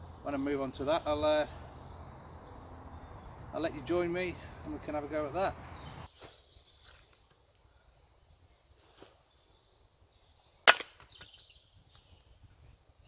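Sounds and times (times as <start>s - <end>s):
rustles in dry leaves: 8.6s - 9.5s.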